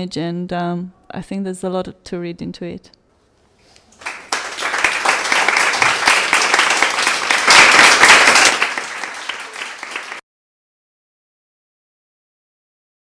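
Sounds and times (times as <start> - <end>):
audience applauding: 3.9 - 10.2.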